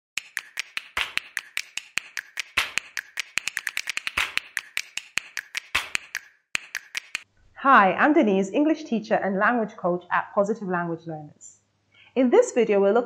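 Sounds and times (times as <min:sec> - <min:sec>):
accented percussive hit: 0:00.2 - 0:04.6
sharp snapping clicks: 0:00.2 - 0:07.2.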